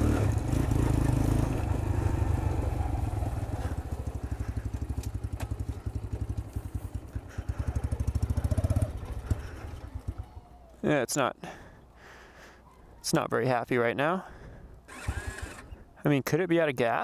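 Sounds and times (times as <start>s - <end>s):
motorcycle engine rough idle: 0.0s - 10.4s.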